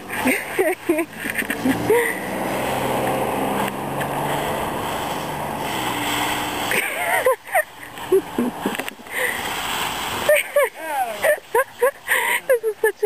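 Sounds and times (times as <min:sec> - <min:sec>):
dog rustling dry leaves: 0:02.3 - 0:07.9.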